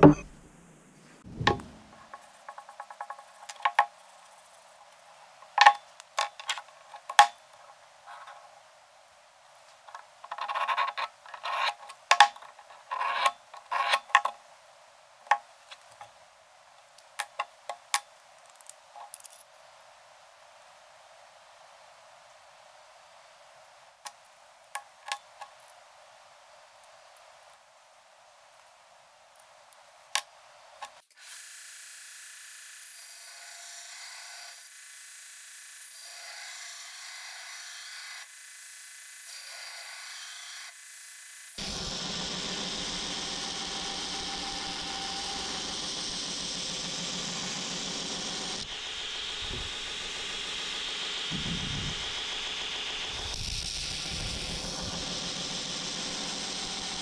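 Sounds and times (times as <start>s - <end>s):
metal sliding and scraping: 9.9s - 14.3s
belt grinder grinding blade: 41.6s - 48.8s.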